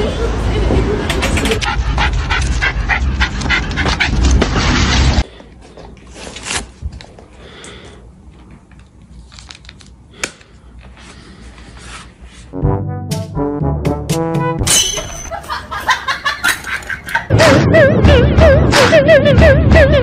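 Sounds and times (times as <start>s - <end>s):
dog panting: 1.3s - 4.8s.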